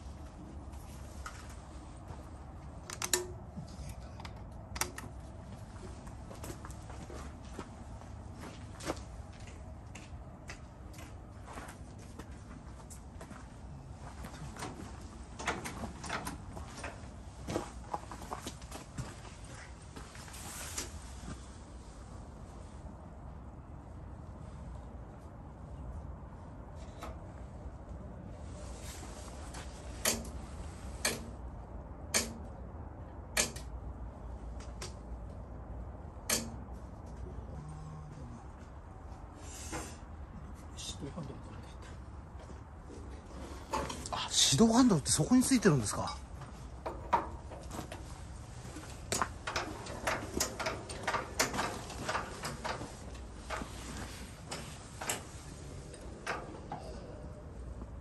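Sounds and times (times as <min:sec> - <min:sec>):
steady low hum: 0:00.0 - 0:58.0
clicks and knocks of machine controls: 0:32.1 - 0:32.5, 0:33.3 - 0:33.7, 0:36.3 - 0:36.7, 0:48.9 - 0:53.8
sharp mechanical clicks: 0:33.3 - 0:33.7.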